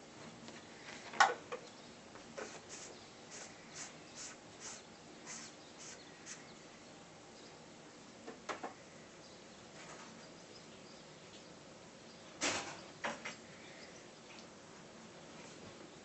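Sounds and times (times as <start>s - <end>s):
kitten claws scratching bedding: 2.4s - 6.5s.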